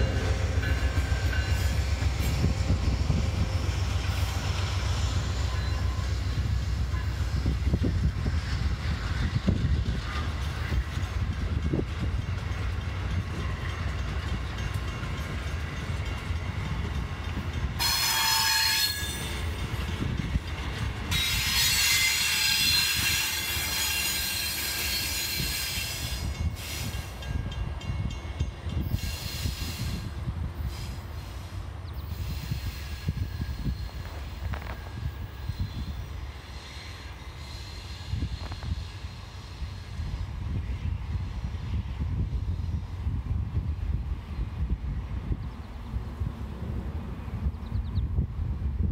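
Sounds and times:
train wheels squealing: 0:00.0 - 0:16.0, 0:17.7 - 0:27.6, 0:28.8 - 0:41.8
train rolling with low rumble: 0:00.0 - 0:48.9.

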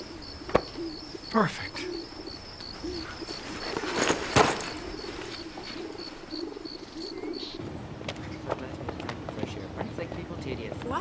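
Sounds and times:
faint high insect-like chirp: 0:00.0 - 0:07.6
pigeons cooing: 0:00.0 - 0:07.6.

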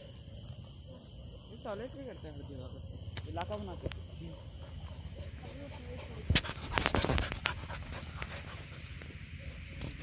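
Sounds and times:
insects chirring: 0:00.0 - 0:10.0
grass rustling and thumping: 0:06.2 - 0:09.2.

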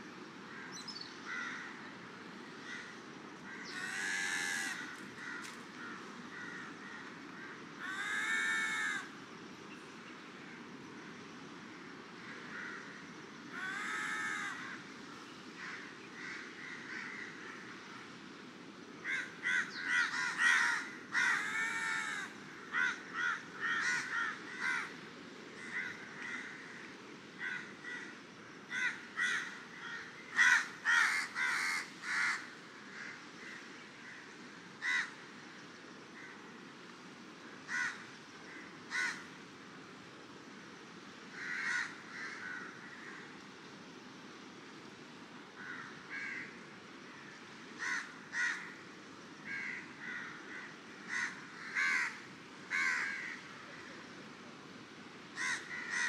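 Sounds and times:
crows cawing: 0:00.5 - 0:01.8, 0:02.6 - 0:09.2, 0:12.2 - 0:14.9, 0:15.6 - 0:18.1, 0:19.0 - 0:25.0, 0:25.6 - 0:35.2, 0:37.7 - 0:39.3, 0:41.3 - 0:43.3, 0:45.6 - 0:48.8, 0:49.5 - 0:54.0, 0:55.4 - 0:56.0.

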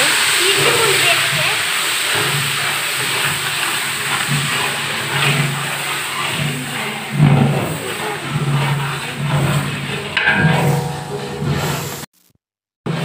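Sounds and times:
food frying in hot oil: 0:00.0 - 0:10.2
low hum: 0:10.2 - 0:12.0.

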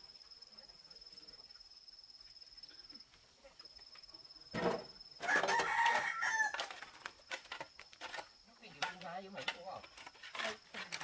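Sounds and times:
rooster crowing: 0:05.2 - 0:06.8.

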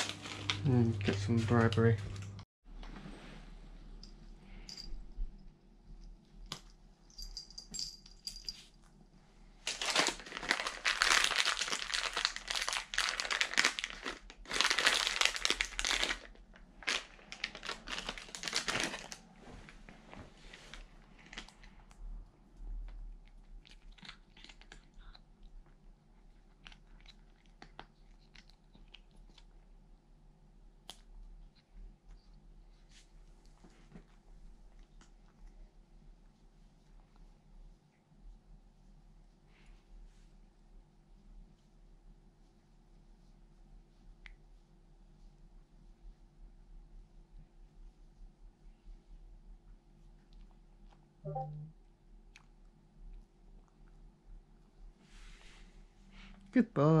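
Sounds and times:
plastic pouch crinkling: 0:00.0 - 0:00.9, 0:09.6 - 0:19.2.

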